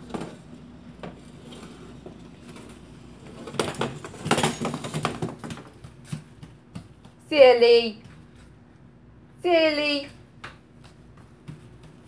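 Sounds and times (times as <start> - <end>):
metal frame scraping wooden floor: 1.1 - 5.4.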